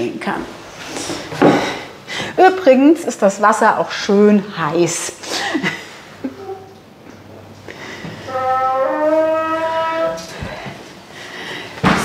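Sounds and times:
door hinge creaking: 8.2 - 10.5.

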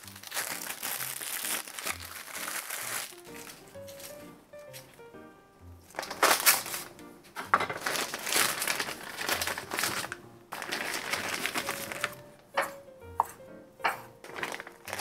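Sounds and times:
plastic packet crinkling: 0.0 - 4.2, 5.9 - 12.4, 14.2 - 15.0.

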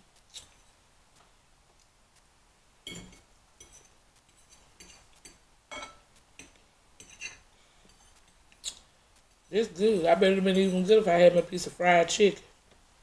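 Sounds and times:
fork clicking and scraping plate: 2.9 - 8.8.

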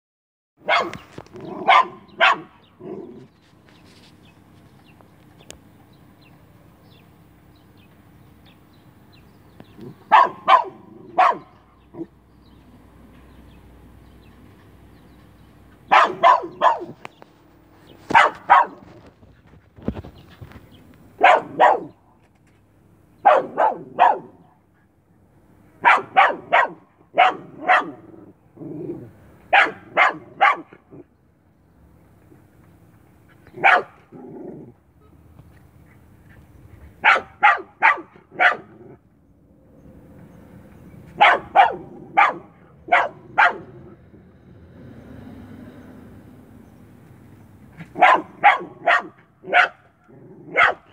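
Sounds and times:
dog barking: 0.6 - 3.0, 10.1 - 12.1, 15.9 - 17.0, 18.1 - 18.9, 21.2 - 22.0, 23.2 - 24.4, 25.8 - 28.1, 29.5 - 30.8, 33.6 - 34.0, 37.0 - 39.0, 41.2 - 44.0, 47.8 - 49.9, 50.5 - 50.9.

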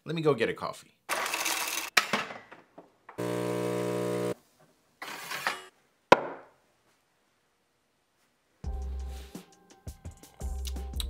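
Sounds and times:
machine motor humming: 3.2 - 4.4.

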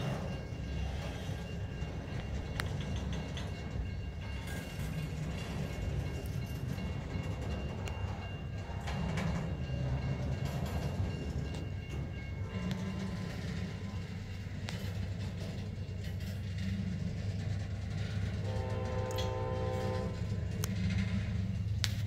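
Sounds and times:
freight train rumbling past: 0.0 - 22.0
train wheel clicks: 0.0 - 22.0.

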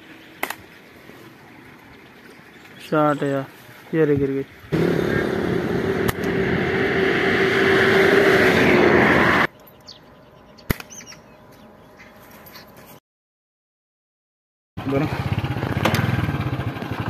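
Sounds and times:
loud steady rushing noise: 4.7 - 9.5
low hum: 4.7 - 9.5
sharp click: 6.0 - 6.4, 10.7 - 11.1
faint bird chirps: 9.5 - 12.7.

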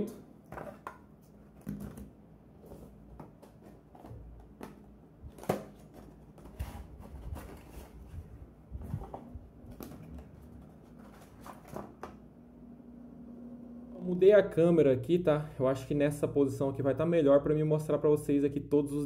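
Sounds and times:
cardboard boxes being handled: 2.6 - 12.0.

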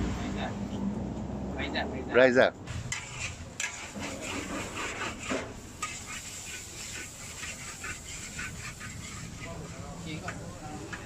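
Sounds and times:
metal spatula scraping a wok: 2.7 - 11.0.

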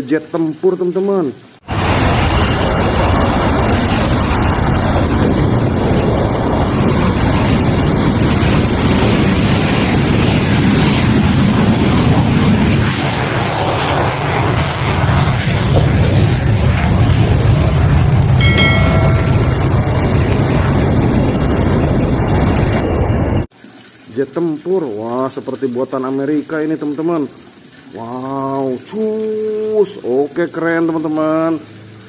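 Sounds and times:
jet engine roaring at takeoff: 1.6 - 23.5.

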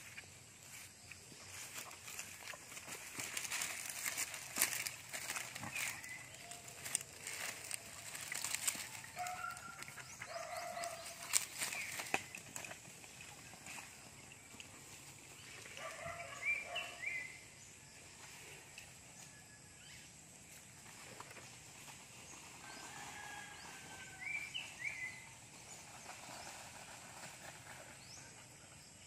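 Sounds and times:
dry palm fronds rustling: 0.0 - 14.2, 20.7 - 28.0.

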